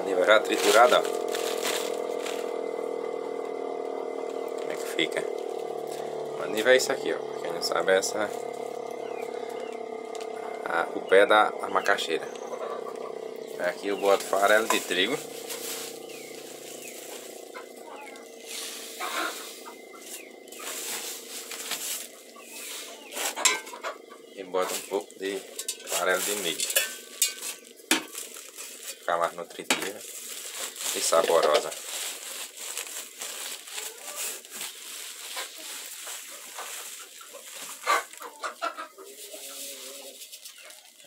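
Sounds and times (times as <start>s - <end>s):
chickens chirping: 0.0s - 41.0s
grain pouring into sack: 14.1s - 17.5s, 29.9s - 37.8s
light crackly rustle: 29.9s - 38.3s.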